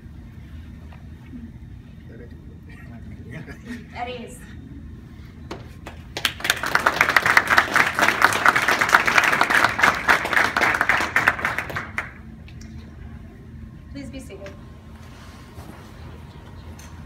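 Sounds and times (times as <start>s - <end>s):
audience applauding: 5.8s - 12.2s.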